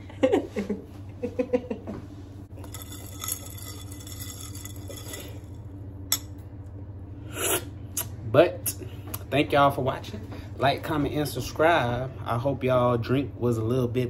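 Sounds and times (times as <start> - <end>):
spoon stirring ice in a glass: 2.6 - 6.3.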